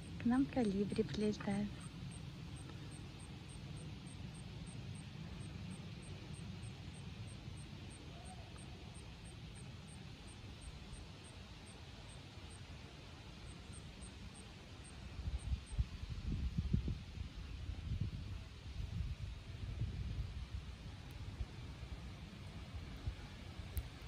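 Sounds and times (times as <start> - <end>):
faint high ticking: 0.0 - 12.7
low background rumble: 0.0 - 24.0.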